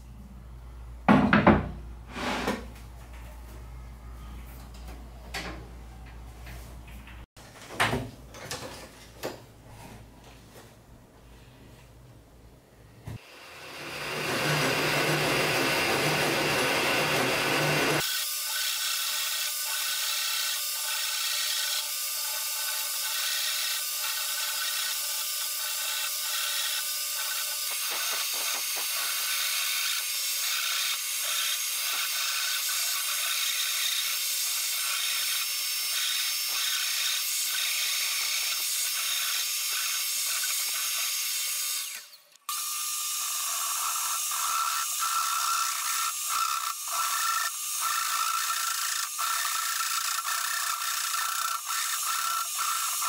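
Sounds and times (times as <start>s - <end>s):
vacuum cleaner running: 13.2s - 18.0s
hand saw cutting wood: 13.2s - 53.0s.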